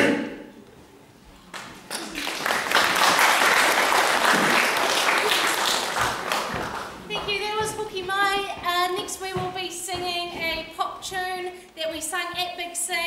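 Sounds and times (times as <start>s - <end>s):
audience applause: 1.9s - 7.1s.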